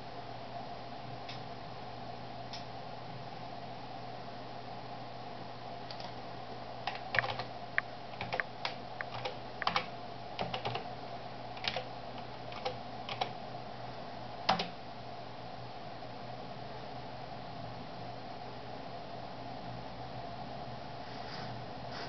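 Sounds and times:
steady low hum: 0.0 - 22.0
computer keyboard typing: 5.9 - 6.1, 6.8 - 7.5, 8.1 - 10.9, 11.6 - 11.9, 12.5 - 13.4, 14.5 - 14.7.

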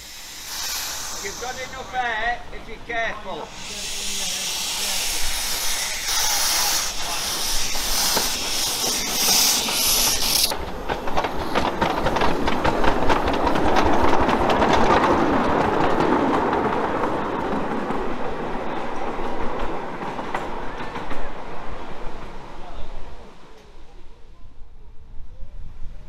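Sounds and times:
pulsing hiss of steam: 0.0 - 14.2
train cars rumbling past: 0.0 - 23.6
wheels clicking over rail joints: 5.0 - 21.3.

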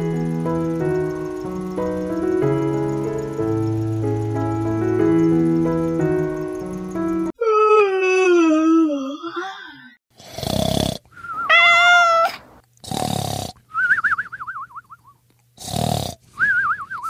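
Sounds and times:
cartoon snoring: 10.2 - 11.3, 12.8 - 13.6, 15.6 - 16.2
warbling whistled exhale: 11.1 - 11.5, 16.3 - 17.0.

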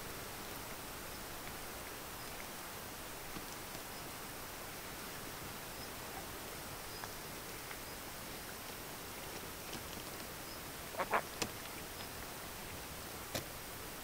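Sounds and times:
faint hiss: 0.0 - 14.0
kingfisher harsh call: 10.9 - 11.3.

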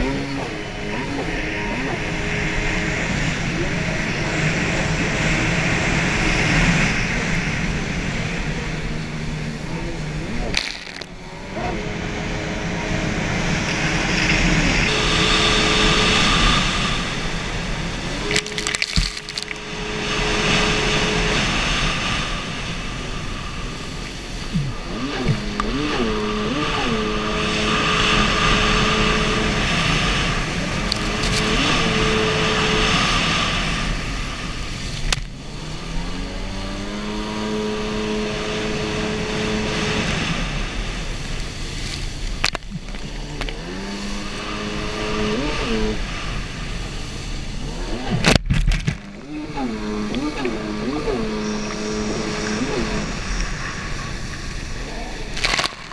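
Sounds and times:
jet ski engine running: 0.0 - 55.9
rushing water: 15.6 - 28.3.

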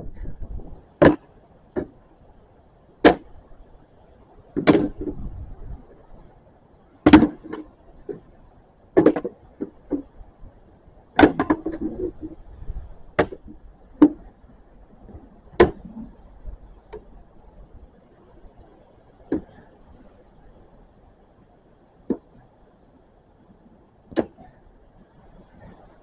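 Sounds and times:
practice swords knocking on shields: 1.0 - 2.0, 3.0 - 3.3, 4.6 - 5.3, 7.0 - 7.6, 9.0 - 10.1, 11.2 - 12.2, 13.2 - 14.2, 15.5 - 16.0.

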